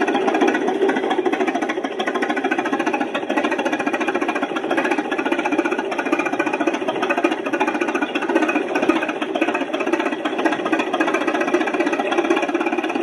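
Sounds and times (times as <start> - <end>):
bulldozer engine clattering: 0.0 - 13.0.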